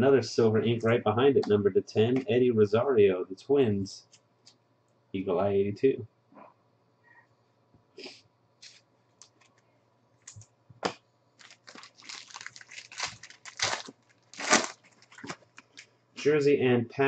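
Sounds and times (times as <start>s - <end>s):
foil wrapper crinkling and tearing: 11.4s - 15.8s.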